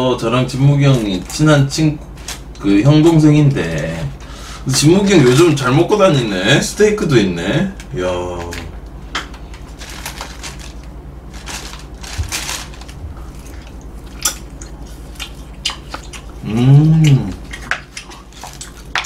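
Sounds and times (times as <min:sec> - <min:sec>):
plastic container and bag rustling: 0:09.5 - 0:13.8
man humming mmm: 0:16.4 - 0:17.6.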